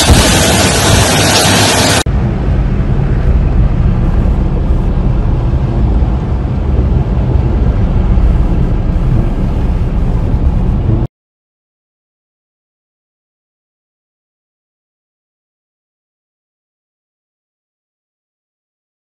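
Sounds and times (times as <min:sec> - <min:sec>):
car driving on flooded road: 0:00.0 - 0:11.1
heavy rain and wind: 0:00.0 - 0:11.1.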